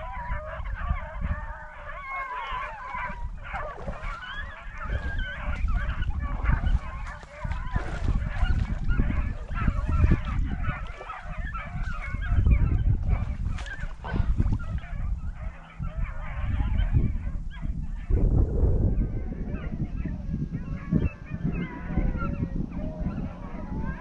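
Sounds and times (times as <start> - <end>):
hounds baying: 0.0 - 18.2, 18.9 - 24.0
low rumble: 11.6 - 24.0.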